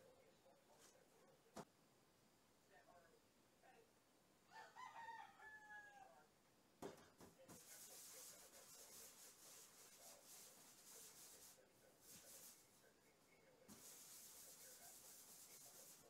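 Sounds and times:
hands rolling dough: 6.8 - 12.9.

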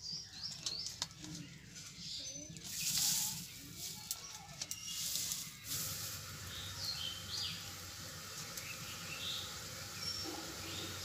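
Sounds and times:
small birds chirping: 0.0 - 11.0
leaf parcels rustling: 0.6 - 6.3.

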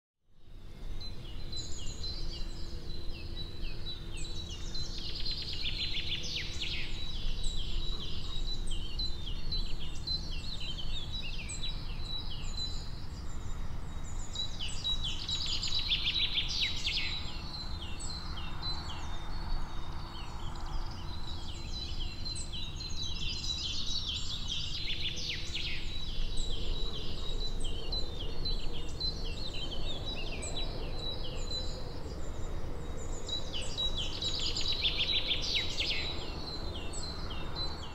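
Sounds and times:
small birds chirping: 0.5 - 37.9.

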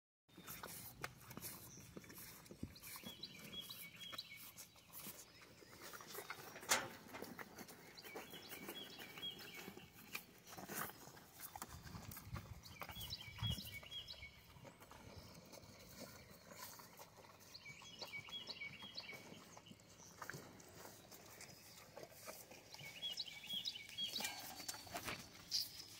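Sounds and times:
cattle licking and chewing: 0.3 - 25.9.

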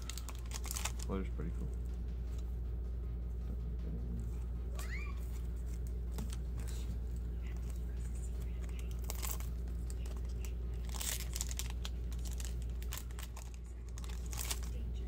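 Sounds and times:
wrapper crinkling and tearing: 0.0 - 1.1, 7.4 - 14.8
steady low hum: 0.0 - 15.0.

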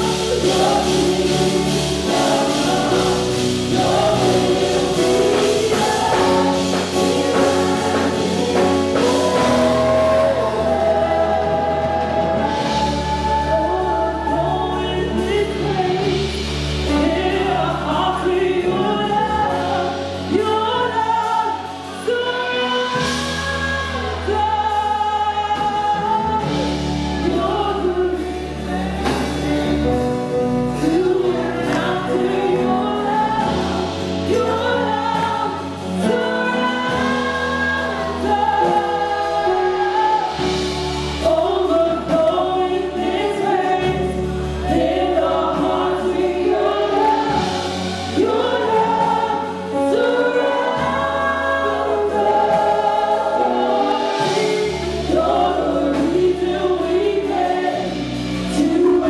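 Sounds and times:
group singing into microphones: 0.0 - 59.0
long held bass notes: 0.0 - 59.0.

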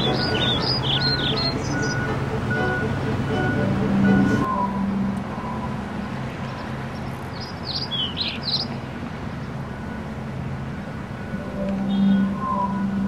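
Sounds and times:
small bird chirps: 0.0 - 2.1, 6.4 - 8.8.

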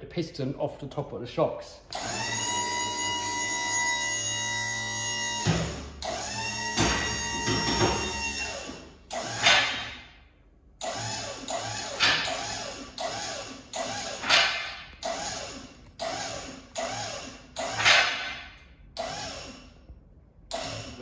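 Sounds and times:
jack pumping with creaking squeaks: 3.1 - 9.9, 10.8 - 18.2.

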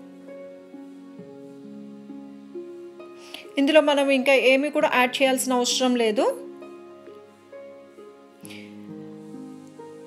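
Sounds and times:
slow melody of held notes: 6.4 - 10.0.

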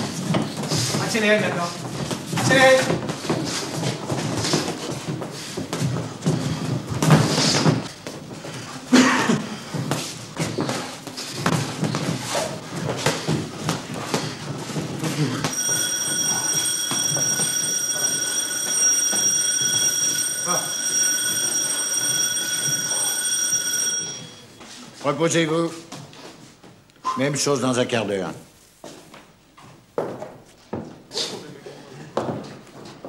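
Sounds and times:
electric bell ringing: 15.5 - 24.5.

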